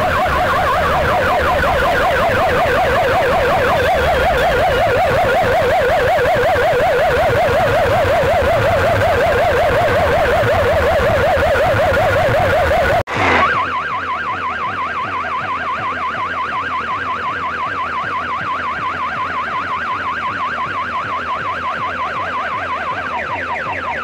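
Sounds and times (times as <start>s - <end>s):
rising electronic sweeps: 0.0s - 13.9s
electronic siren warble: 0.0s - 24.0s.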